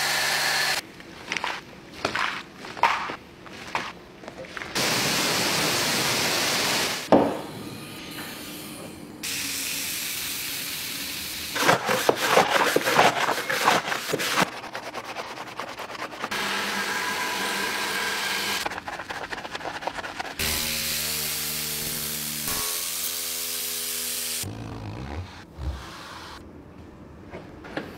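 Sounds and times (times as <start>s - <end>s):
scrubbing strokes: 11.6s - 16.3s, 18.6s - 20.4s.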